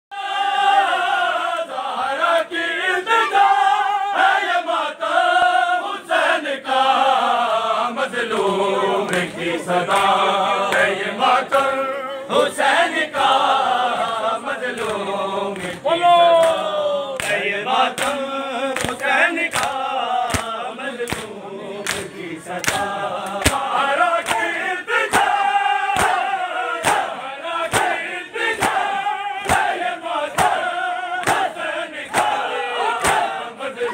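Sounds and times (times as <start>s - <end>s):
men chanting together: 0.1s - 33.9s
hand slaps on chest: 18.8s - 21.3s.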